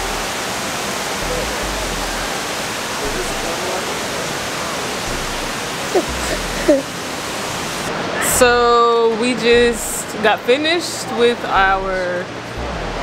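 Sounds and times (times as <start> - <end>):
indoor waterfall rushing: 0.0 - 9.7.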